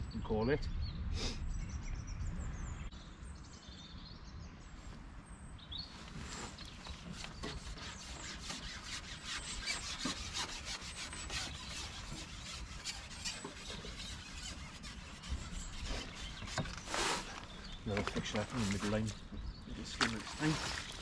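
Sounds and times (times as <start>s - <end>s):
low wind rumble: 0.0s - 6.9s
bird chirp: 0.0s - 21.0s.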